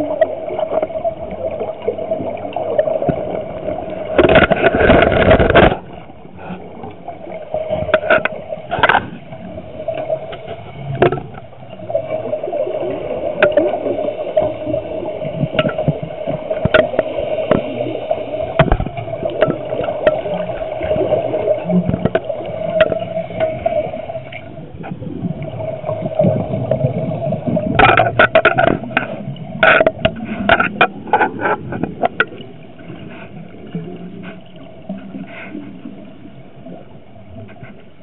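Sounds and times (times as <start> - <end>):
steady underwater hum: 0.0 - 38.0.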